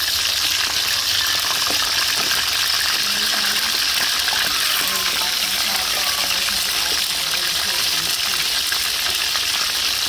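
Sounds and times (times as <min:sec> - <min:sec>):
fish sizzling in hot oil: 0:00.0 - 0:10.0.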